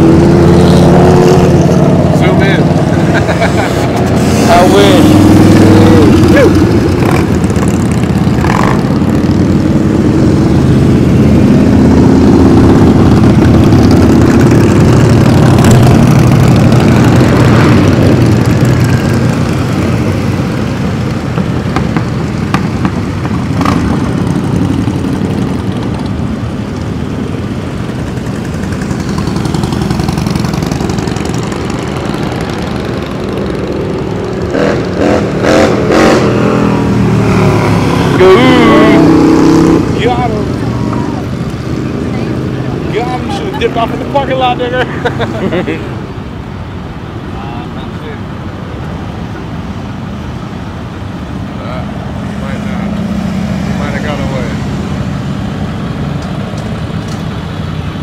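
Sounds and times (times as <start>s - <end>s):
motorcycles passing: 0.0s - 58.0s.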